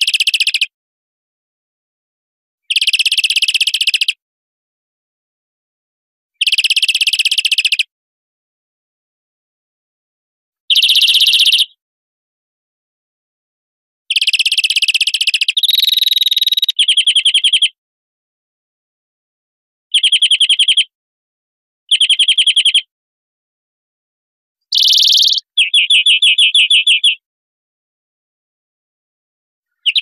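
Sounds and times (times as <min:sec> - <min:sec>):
bird song with rapid trills: 0:02.7 - 0:04.2, 0:06.4 - 0:07.9, 0:10.7 - 0:11.8, 0:14.1 - 0:17.8, 0:19.9 - 0:20.9, 0:21.9 - 0:22.9, 0:24.7 - 0:27.2, 0:29.7 - 0:30.0.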